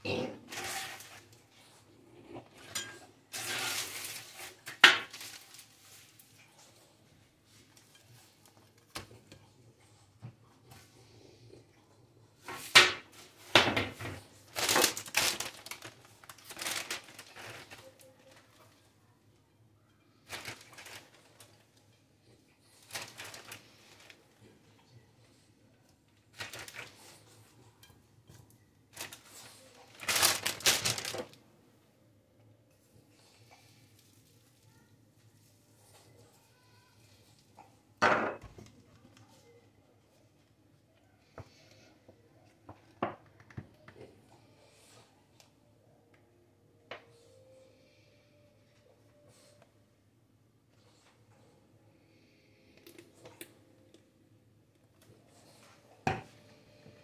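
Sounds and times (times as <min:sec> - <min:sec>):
plastic bag rustling: 0:03.3 - 0:06.4, 0:12.5 - 0:18.8, 0:20.2 - 0:21.8, 0:22.6 - 0:24.4, 0:26.2 - 0:27.4, 0:28.9 - 0:31.5.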